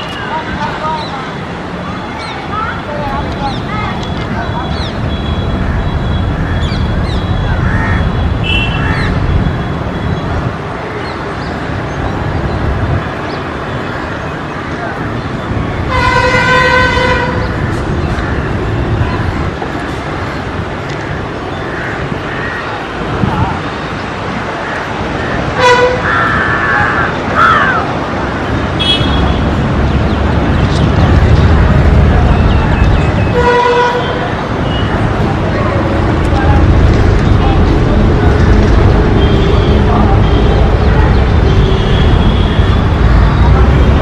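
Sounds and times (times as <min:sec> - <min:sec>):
traffic rumble: 0:00.0 - 0:44.0
horn toots: 0:15.9 - 0:17.6.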